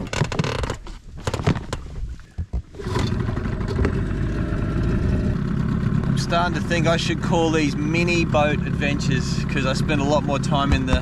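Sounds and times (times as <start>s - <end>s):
outboard motor running: 2.4s - 11.0s
knocks and clattering: 10.6s - 11.0s.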